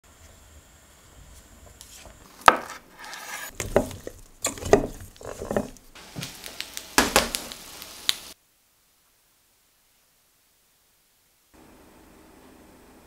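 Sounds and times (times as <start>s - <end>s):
sizzling hiss: 0.1s - 8.4s.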